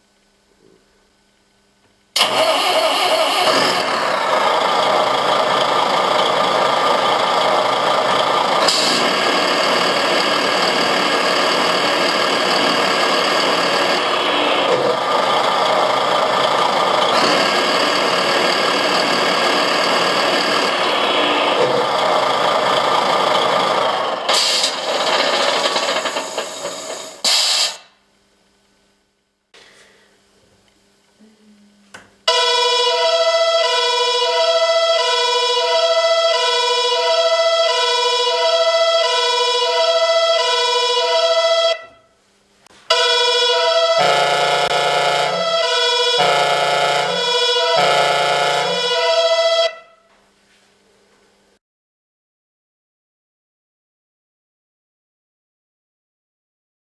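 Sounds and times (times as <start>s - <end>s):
simulated truck engine: 2.0s - 28.0s, 32.0s - 50.0s.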